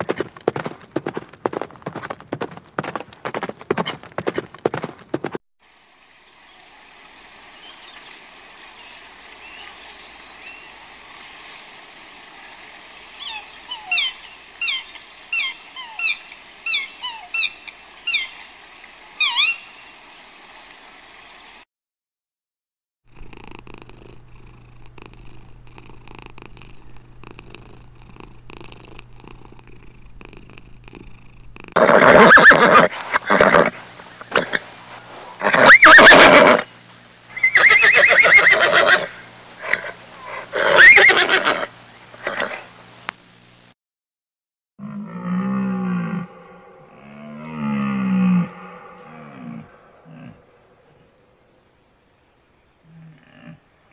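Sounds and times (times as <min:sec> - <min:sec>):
horse rolling in dirt: 0:00.0 - 0:05.4
soft steady hiss: 0:00.1 - 0:21.6, 0:23.1 - 0:43.8, 0:48.2 - 0:53.9
low steady hum: 0:23.2 - 0:31.6, 0:36.5 - 0:37.7, 0:38.6 - 0:43.7.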